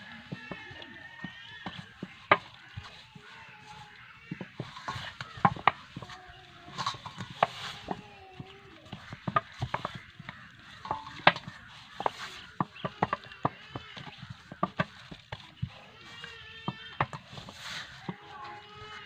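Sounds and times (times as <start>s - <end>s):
dough knocking against steel bowl: 4.3s - 8.0s, 8.9s - 15.8s.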